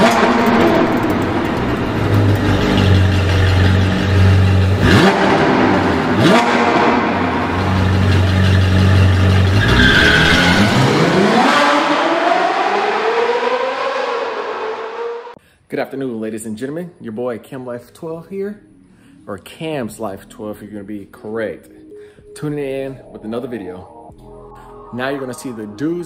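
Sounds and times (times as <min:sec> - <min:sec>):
sports car engine revving: 0:00.0 - 0:15.4.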